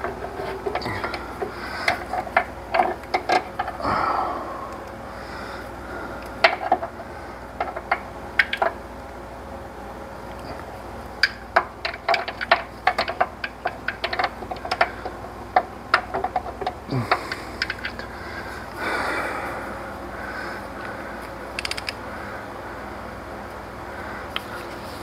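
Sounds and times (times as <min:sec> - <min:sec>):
metallic clicks and taps: 0:21.6 - 0:22.0.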